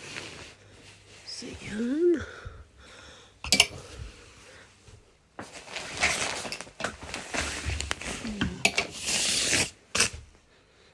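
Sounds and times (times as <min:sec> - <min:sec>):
clothes rustling: 0:00.0 - 0:02.3, 0:03.8 - 0:08.6.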